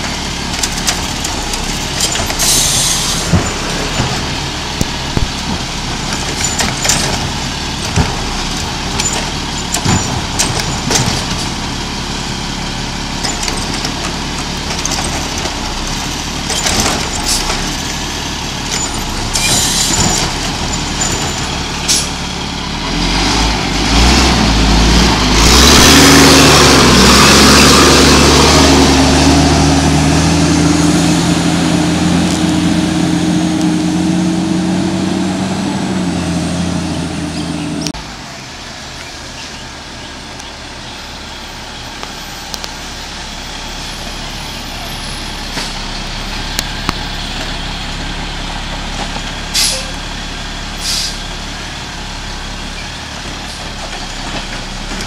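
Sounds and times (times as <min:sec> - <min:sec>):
garbage truck diesel engine: 0:00.0 - 0:55.0.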